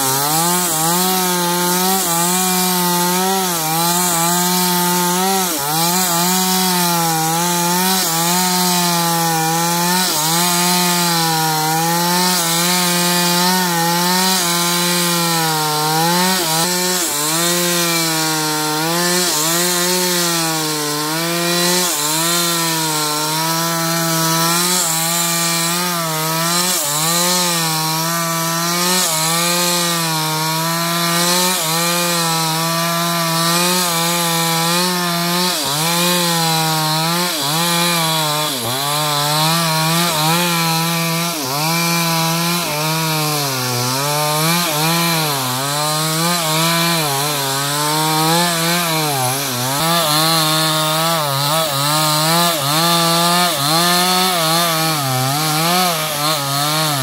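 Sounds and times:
chainsaw cutting wood: 0:00.0 - 0:57.0.

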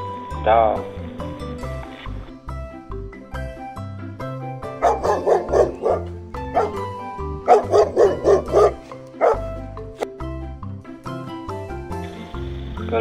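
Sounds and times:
background music: 0:00.0 - 0:13.0
dog barking: 0:04.7 - 0:09.6.

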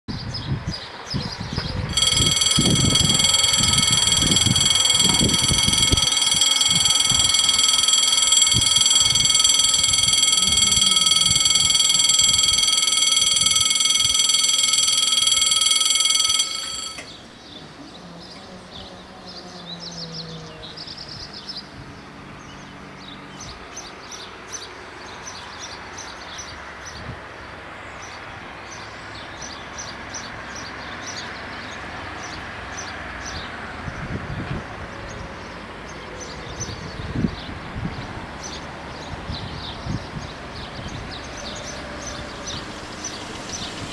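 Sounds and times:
level crossing warning bells: 0:01.8 - 0:17.4, 0:38.4 - 0:43.9.

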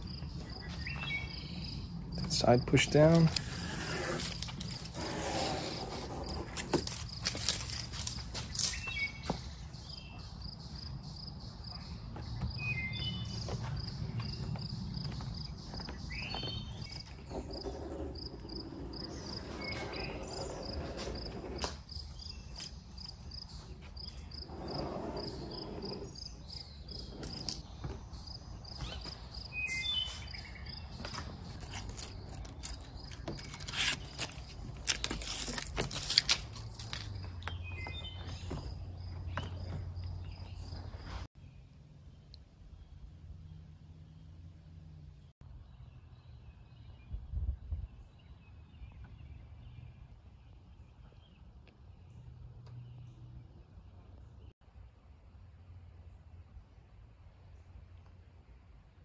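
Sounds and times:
bird chirps: 0:00.0 - 0:03.0, 0:08.4 - 0:35.4.

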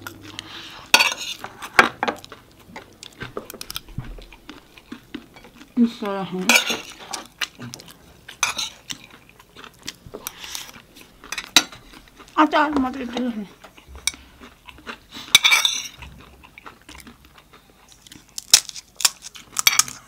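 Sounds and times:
spoons clinking on plates: 0:01.0 - 0:01.4, 0:08.4 - 0:08.9, 0:15.3 - 0:16.0, 0:19.6 - 0:20.0.

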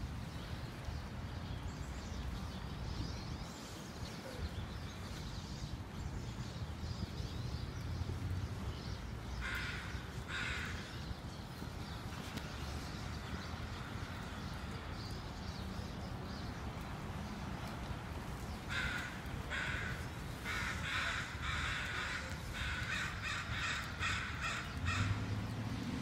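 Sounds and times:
crows cawing: 0:09.4 - 0:10.9, 0:18.7 - 0:25.2.

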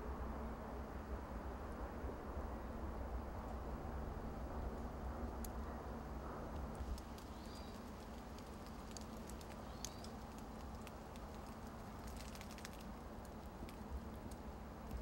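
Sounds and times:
light clicks: 0:06.5 - 0:15.0
small bird chirping: 0:07.2 - 0:07.9, 0:08.6 - 0:10.3.

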